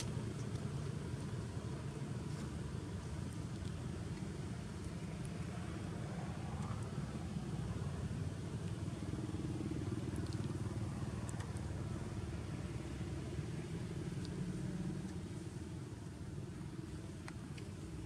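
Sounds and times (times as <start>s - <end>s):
vehicle engine rumble: 0.0s - 18.0s.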